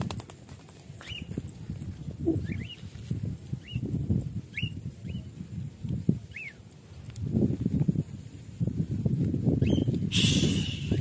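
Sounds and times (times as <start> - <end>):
wind buffeting microphone: 0.0 - 11.0
small bird chirping: 2.2 - 2.9, 9.5 - 11.0.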